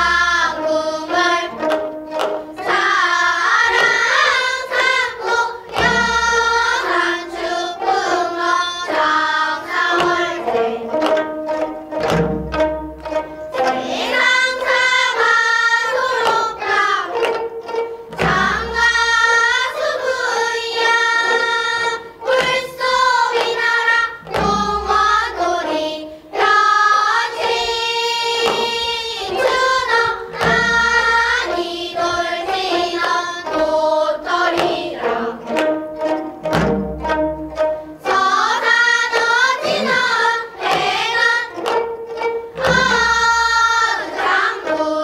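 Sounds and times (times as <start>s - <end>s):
girls singing in unison: 0.0s - 12.0s, 13.0s - 36.5s, 37.5s - 45.0s
plucked zithers: 0.0s - 15.3s, 28.3s - 45.0s
drum beat: 5.7s - 8.4s, 9.6s - 14.4s, 16.2s - 19.4s, 24.2s - 25.6s, 28.4s - 32.8s, 34.4s - 38.6s, 39.4s - 44.5s.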